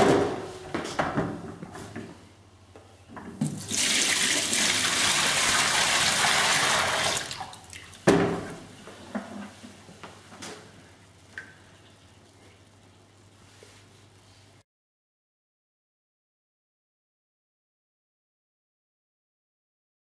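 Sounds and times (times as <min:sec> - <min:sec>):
water gushing into a metal sink: 0:03.6 - 0:08.0.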